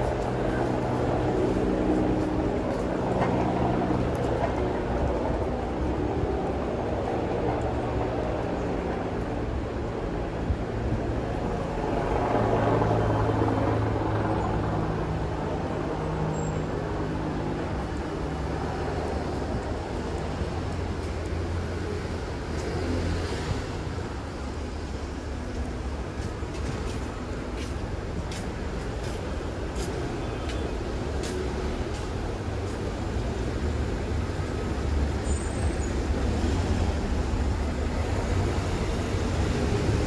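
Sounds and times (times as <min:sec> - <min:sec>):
steady traffic noise: 0:00.0 - 0:40.0
car engines passing: 0:15.1 - 0:40.0.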